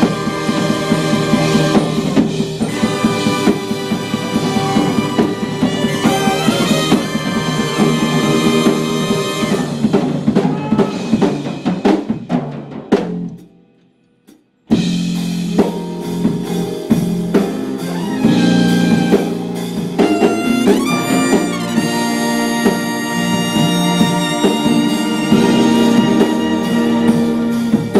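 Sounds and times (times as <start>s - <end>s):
trumpet playing: 0.0s - 9.9s, 17.8s - 27.9s
violins: 0.0s - 10.0s, 17.8s - 27.9s
drums: 0.0s - 27.9s.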